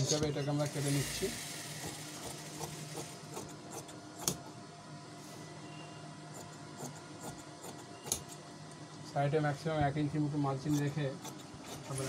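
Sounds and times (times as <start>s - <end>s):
steady low hum: 0.0s - 12.0s
shears snipping cloth: 10.6s - 12.0s.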